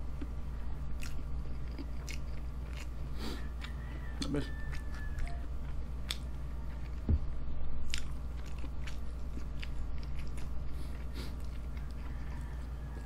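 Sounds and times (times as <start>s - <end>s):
steady low hum: 0.0s - 13.0s
chewing and biting: 0.1s - 7.1s, 7.9s - 13.0s
low thump: 7.0s - 7.4s.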